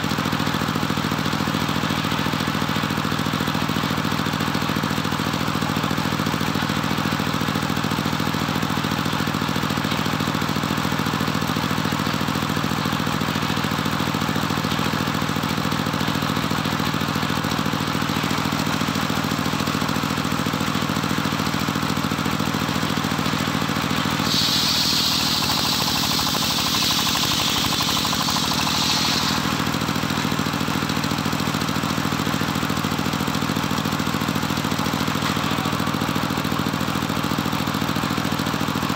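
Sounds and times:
sawmill engine running: 0.0 - 38.9
saw blade whining through log: 23.8 - 31.4.

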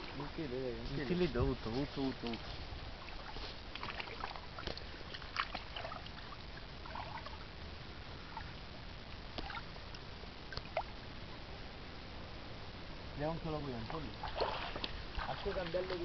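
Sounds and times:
light splashing of shallow water: 1.1 - 7.4, 9.3 - 11.0, 13.7 - 16.0.

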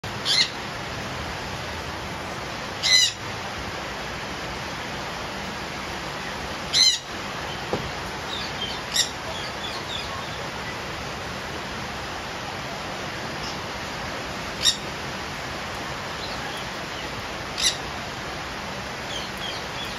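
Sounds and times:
falling rain hiss: 0.0 - 19.9
parrots squawking: 0.2 - 0.6, 2.8 - 3.2, 6.7 - 7.1, 8.3 - 10.4, 17.6 - 17.8.

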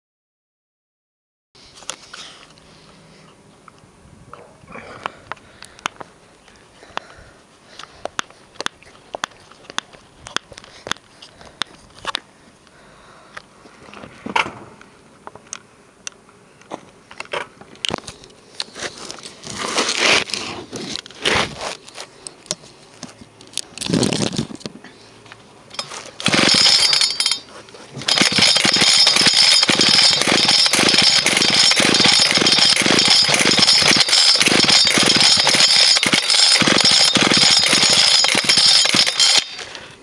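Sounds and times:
recoil starter cord rasping whirr: 25.7 - 39.8.

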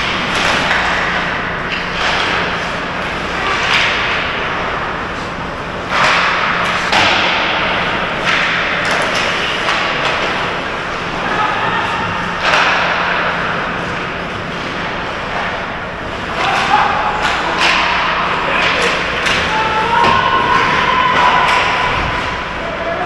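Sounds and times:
steady low hum: 0.0 - 23.0
sticks and puck knocking: 16.3 - 22.4.

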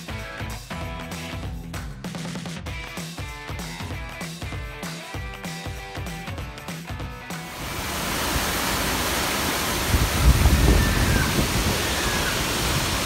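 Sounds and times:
waterfall rushing into pool: 7.3 - 13.0.

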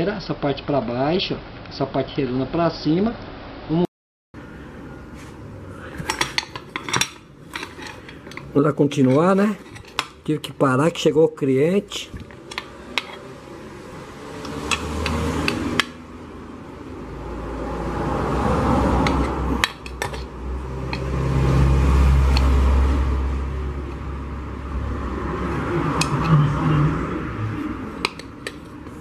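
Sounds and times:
vehicle engine rumble: 4.4 - 10.3, 12.0 - 29.0.

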